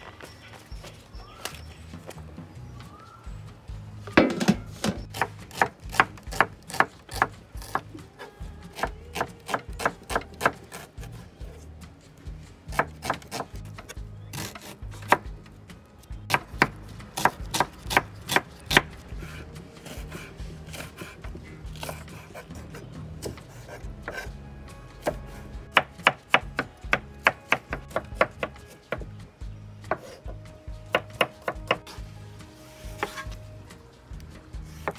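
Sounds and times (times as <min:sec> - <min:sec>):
soft background music: 0:00.0 - 0:34.9
knife chopping on wooden board: 0:12.7 - 0:13.6, 0:16.3 - 0:18.9.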